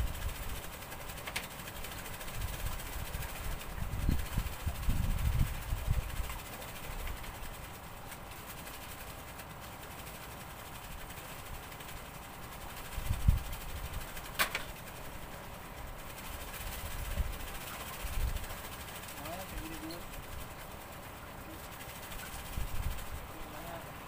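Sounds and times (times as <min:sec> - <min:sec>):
wind buffeting microphone: 0:02.1 - 0:07.5, 0:12.8 - 0:14.3, 0:16.3 - 0:18.6, 0:22.3 - 0:23.3.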